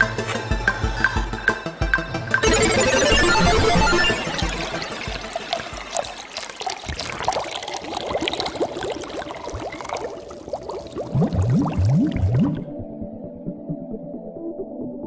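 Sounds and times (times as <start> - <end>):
rising bubbling bloops: 2.4 - 13.8
deep rising gulps: 5.1 - 14.7.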